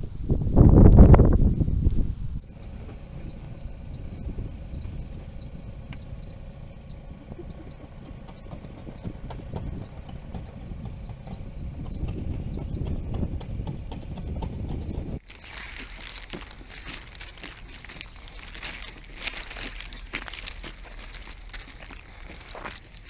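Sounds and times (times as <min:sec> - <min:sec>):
low steady rumble: 0:00.0 - 0:23.0
freezing rain ticking on ice: 0:15.2 - 0:23.0.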